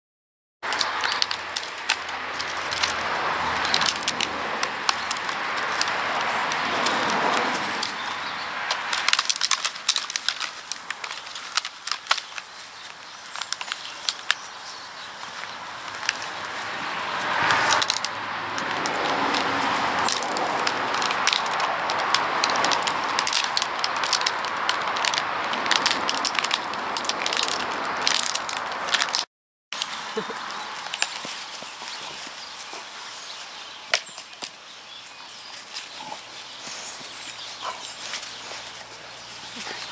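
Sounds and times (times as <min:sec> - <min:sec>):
dogs chewing stick cracking: 0:00.6 - 0:29.2, 0:33.9 - 0:39.9.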